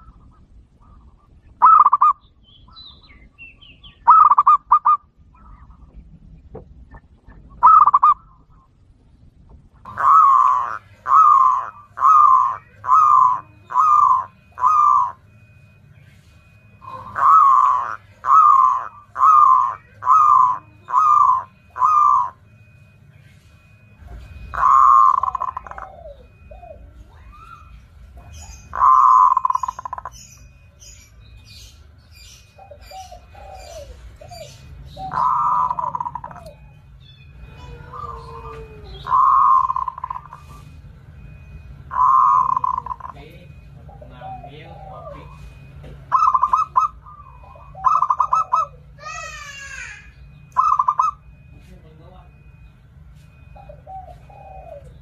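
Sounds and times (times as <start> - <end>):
dove cooing: 0.0 - 2.2, 4.0 - 6.2, 6.9 - 8.8, 9.8 - 30.6, 32.4 - 51.5, 52.3 - 55.0
dove trill: 0.0 - 8.9, 9.8 - 55.0
small bird chirping: 10.0 - 52.9.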